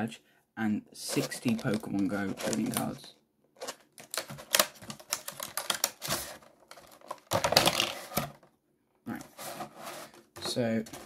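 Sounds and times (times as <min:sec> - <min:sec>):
plastic packaging crackling: 0:01.1 - 0:08.4.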